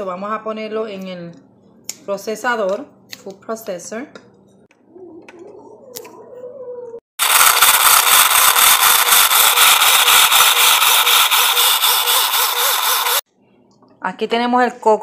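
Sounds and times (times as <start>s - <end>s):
food processor chopping coconut: 7.2s - 13.2s.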